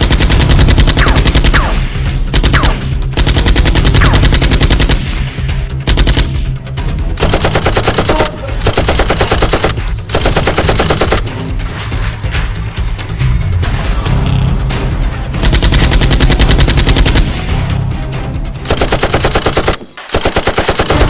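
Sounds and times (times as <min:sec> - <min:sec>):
automatic gunfire bursts: 0:07.2 - 0:11.3, 0:18.7 - 0:21.0.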